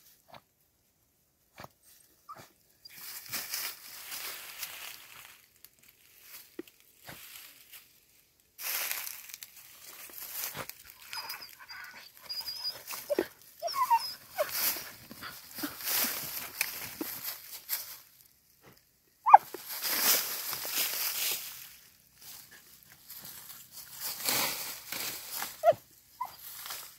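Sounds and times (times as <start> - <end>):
dogs digging in leaf litter: 8.6 - 18.2, 19.3 - 26.9
dog whimpering: 11.0 - 14.8.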